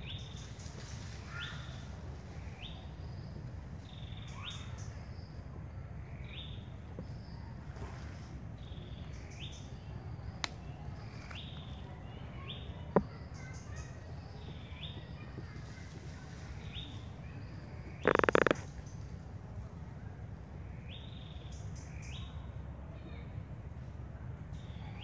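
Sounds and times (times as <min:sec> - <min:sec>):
sharp clicks: 0:18.0 - 0:18.7.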